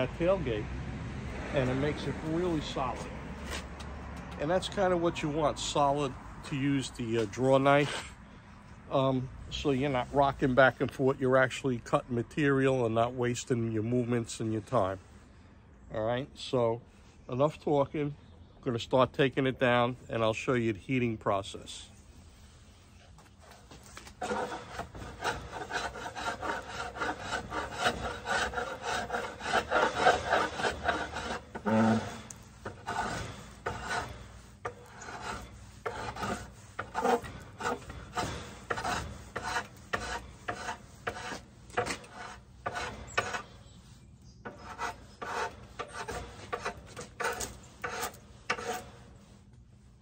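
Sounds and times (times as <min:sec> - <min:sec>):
draw knife shaving wood: 0:23.9 - 0:43.5, 0:44.4 - 0:49.1.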